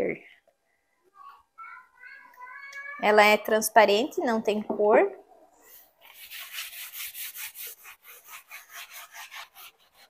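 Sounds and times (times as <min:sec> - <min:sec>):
cloth rubbing on floor: 0:05.6 - 0:10.0.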